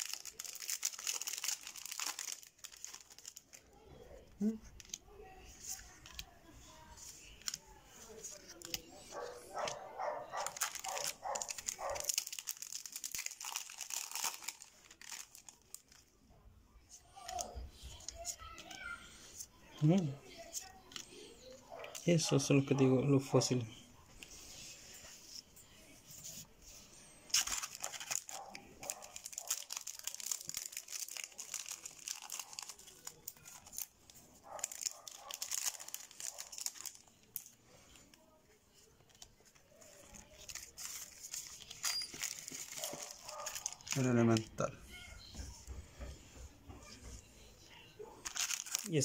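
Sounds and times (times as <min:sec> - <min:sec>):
foil wrapper crinkling and tearing: 0:00.0 - 0:03.8, 0:07.2 - 0:16.0, 0:27.3 - 0:38.1, 0:38.8 - 0:44.6, 0:48.2 - 0:49.0.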